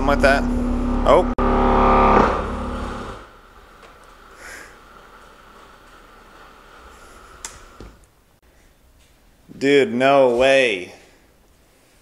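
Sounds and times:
short breath-like hiss: 4.4 - 4.8.

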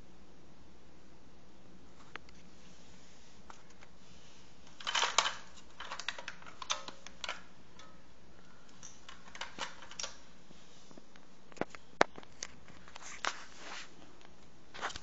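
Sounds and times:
handling clicks and clatter: 4.6 - 8.0, 8.7 - 10.3.

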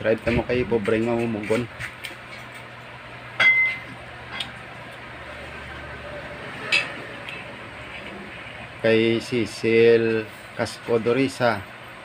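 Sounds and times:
tableware clinking: 3.4 - 4.5.

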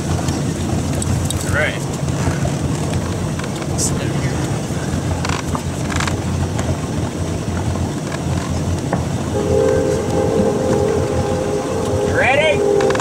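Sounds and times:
boat engine low rumble: 0.0 - 13.0
steady hum: 9.2 - 13.0.

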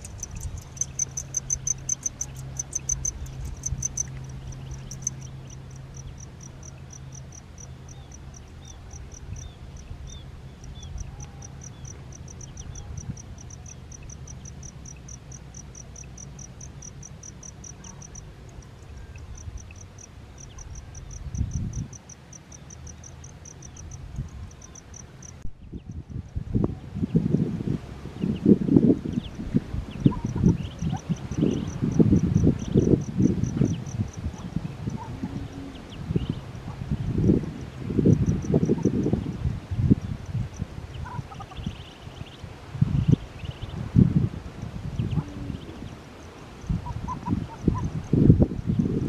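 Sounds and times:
ducklings peeping: 0.0 - 6.8, 40.9 - 42.4, 45.0 - 46.0, 46.8 - 47.9
insect chirping: 0.0 - 26.4, 29.1 - 49.0.

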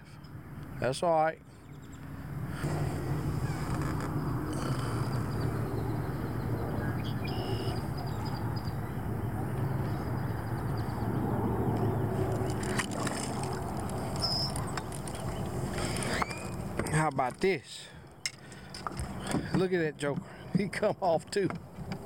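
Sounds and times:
water noise around boat: 0.0 - 22.0
wind rumble: 1.8 - 16.9.

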